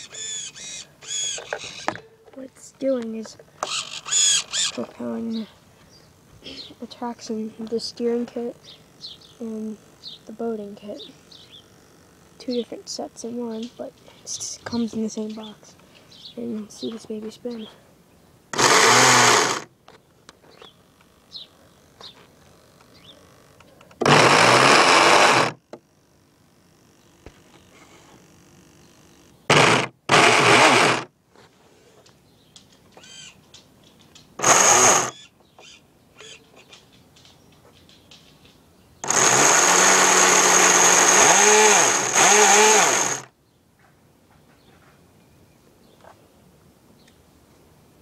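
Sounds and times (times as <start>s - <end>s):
electric motor and propeller whirring: 0.0s - 5.3s, 18.5s - 19.7s, 20.9s - 31.1s, 34.4s - 35.2s, 39.0s - 43.3s
electric motor whirring: 3.6s - 4.8s, 18.5s - 19.7s, 24.0s - 25.6s, 29.5s - 31.1s, 34.4s - 35.2s, 39.0s - 43.3s.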